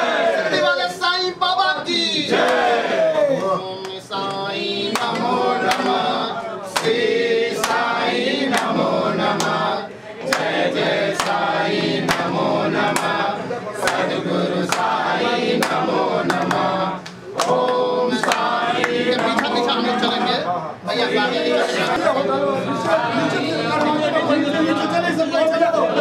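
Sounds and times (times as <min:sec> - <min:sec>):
group of voices chanting: 0:02.0 - 0:20.3.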